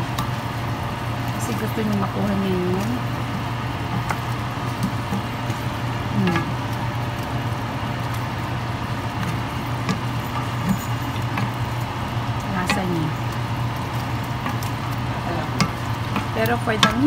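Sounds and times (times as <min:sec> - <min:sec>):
faint sizzle: 0:00.0 - 0:17.0
steady low hum: 0:00.0 - 0:17.0
wooden spoon stirring sauce: 0:00.1 - 0:17.0
spoon knocking on pan: 0:15.5 - 0:17.0.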